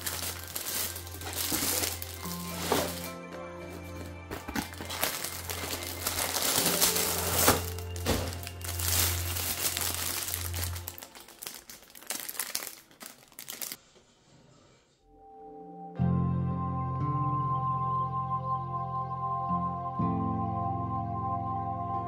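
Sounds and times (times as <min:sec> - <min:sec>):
packaging crackles: 0:00.0 - 0:03.2, 0:04.3 - 0:13.8
cardboard packaging rustling: 0:00.0 - 0:13.8.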